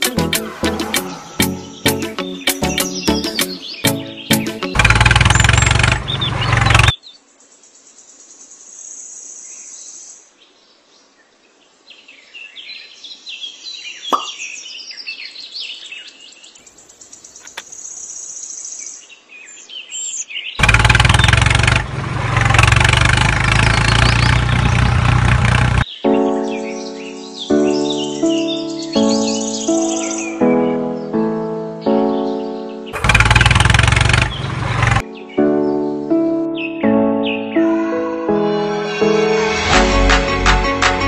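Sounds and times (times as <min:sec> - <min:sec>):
background music: 0:00.0 - 0:05.4, 0:26.0 - 0:33.1, 0:35.0 - 0:41.0
birds chirping: 0:00.0 - 0:08.2, 0:13.8 - 0:37.7.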